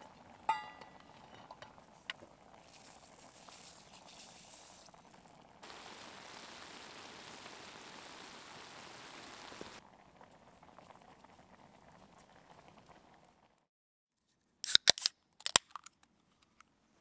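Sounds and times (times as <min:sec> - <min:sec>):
sauce simmering in a pan: 0:00.0 - 0:13.6
camp stove flame hissing: 0:02.6 - 0:09.8
beer cans cracking open: 0:14.6 - 0:16.1.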